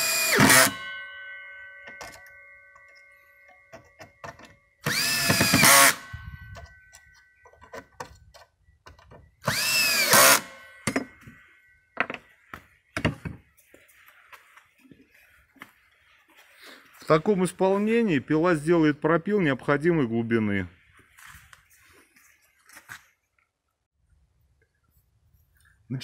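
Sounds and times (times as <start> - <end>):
handling knocks and clicks: 1.8 - 4.7, 6.5 - 9.4
cordless drill driving screws: 4.8 - 6.0, 9.4 - 10.5.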